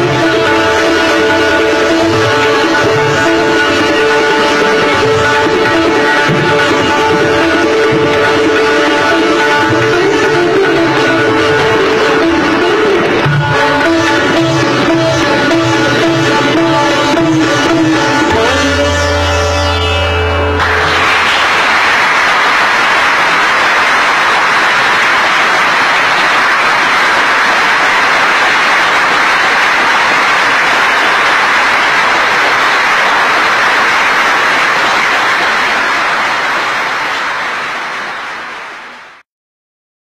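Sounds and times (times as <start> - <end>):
audience applause: 20.6 - 39.2.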